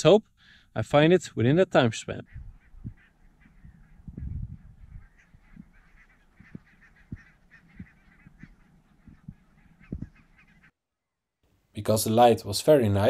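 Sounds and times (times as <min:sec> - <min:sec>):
geese honking: 0:01.8 - 0:10.7
soft low thumps: 0:02.3 - 0:10.2.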